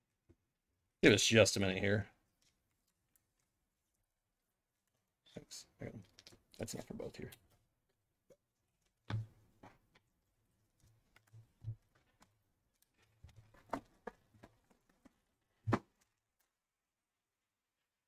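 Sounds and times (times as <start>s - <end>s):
cards clicking and knocking: 10.9s - 16.2s.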